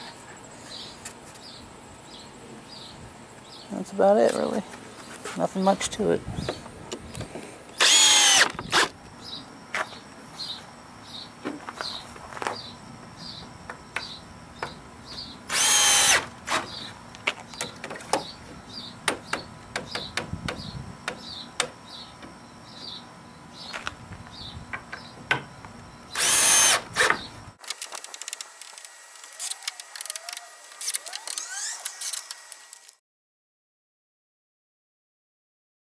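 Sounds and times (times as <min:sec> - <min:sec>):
cordless drill driving screws: 0:07.8 - 0:08.9, 0:15.5 - 0:16.6, 0:26.1 - 0:33.0.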